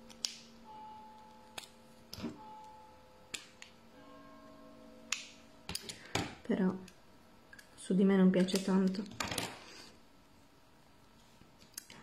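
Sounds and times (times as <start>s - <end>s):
makeup items clicking and tapping: 8.3s - 9.5s.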